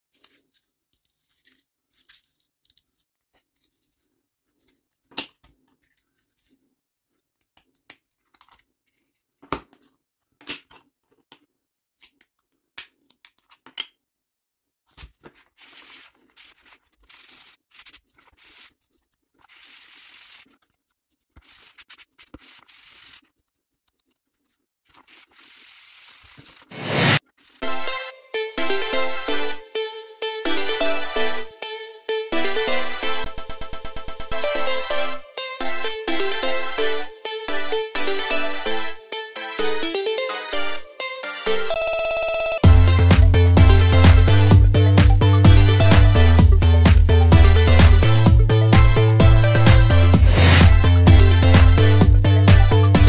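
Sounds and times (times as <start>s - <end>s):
plastic rasping on sanding pad: 15.6s - 27.6s.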